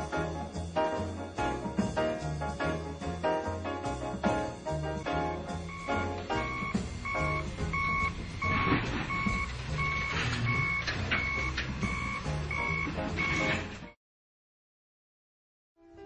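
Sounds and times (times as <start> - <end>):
reversing alarm beeping: 5.6 - 13.7.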